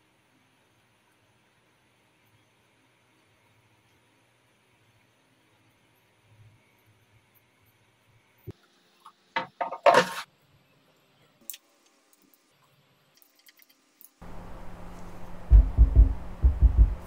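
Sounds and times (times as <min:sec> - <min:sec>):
steady low hum: 0:14.2 - 0:17.0
bass-heavy music: 0:15.4 - 0:17.0.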